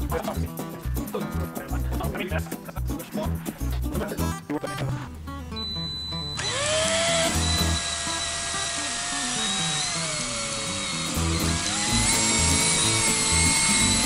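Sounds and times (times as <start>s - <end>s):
background music: 0.0s - 8.4s, 11.0s - 14.0s
power drill drilling plastic: 6.4s - 14.0s.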